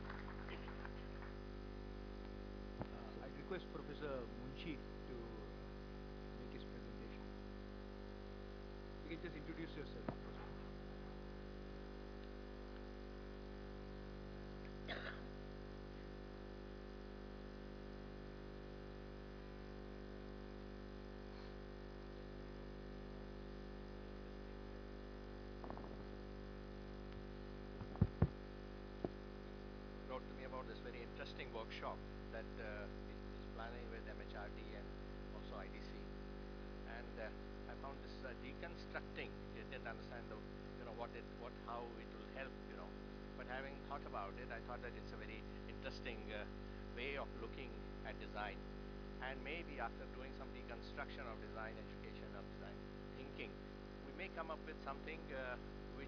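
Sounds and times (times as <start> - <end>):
electrical mains hum: 0.0 - 56.0
microphone handling thumps: 10.0 - 10.7, 25.6 - 26.2, 27.7 - 28.4.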